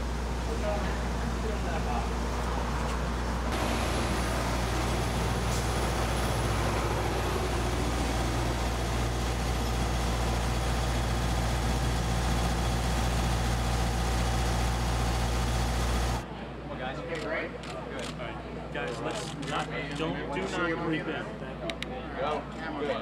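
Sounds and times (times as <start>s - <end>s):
motor running steadily: 3.4s - 16.2s.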